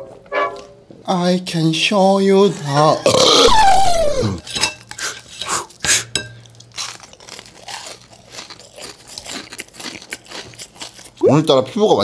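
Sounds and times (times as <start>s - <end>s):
falling vocal sound: 3.1s - 4.4s
cutlery clinking on dishes: 4.4s - 6.7s
eating noises: 6.7s - 11.8s.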